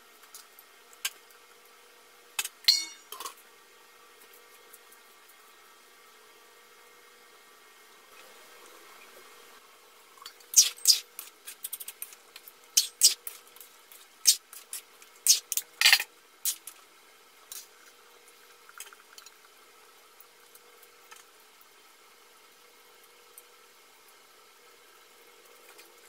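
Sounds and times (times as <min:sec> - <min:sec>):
metal lid and ladle clinking on pan: 0:02.7 - 0:03.3.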